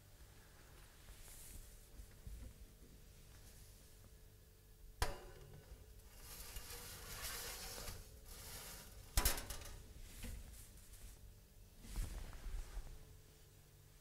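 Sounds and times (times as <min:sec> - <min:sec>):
tray scraping on wire rack: 0:06.1 - 0:09.8.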